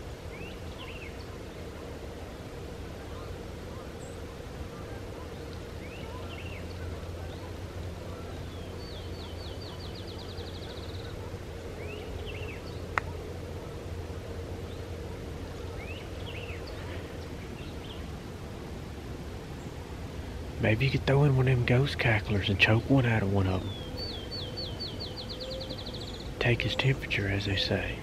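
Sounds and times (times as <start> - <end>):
low background rumble: 0.0 - 28.0
songbirds calling: 0.0 - 28.0
bird trill: 3.0 - 13.2, 22.0 - 28.0.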